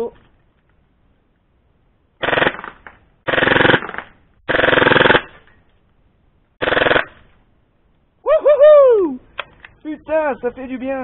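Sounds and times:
airsoft gun firing bursts: 2.2s - 5.4s, 6.6s - 7.2s.

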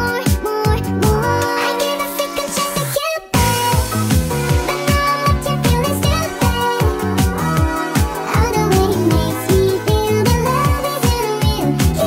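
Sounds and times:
synth chords: 3.4s - 12.0s.

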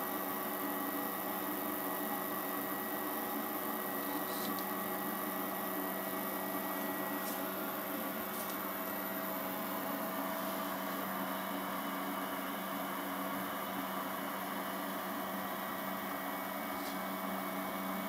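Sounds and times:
electrical hum with tones: 0.0s - 18.0s.

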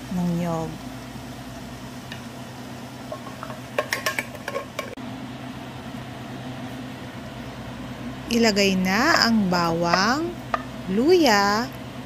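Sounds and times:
steady low hum: 0.0s - 12.0s
utensils clinking against wok: 3.1s - 5.0s.

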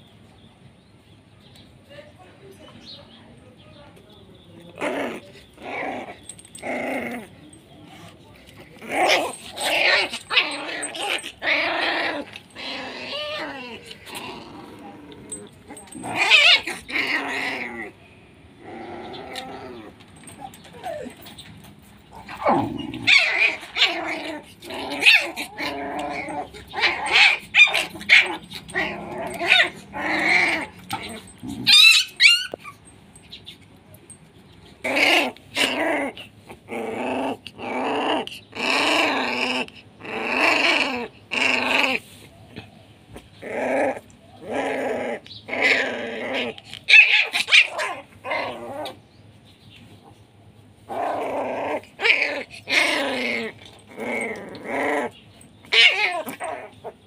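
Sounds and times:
dog growling: 4.7s - 18.0s, 18.6s - 21.4s, 22.0s - 32.7s, 34.8s - 42.7s, 43.4s - 49.0s, 50.9s - 57.0s
puppy yapping: 24.9s - 32.8s, 46.4s - 49.0s, 54.4s - 57.0s.

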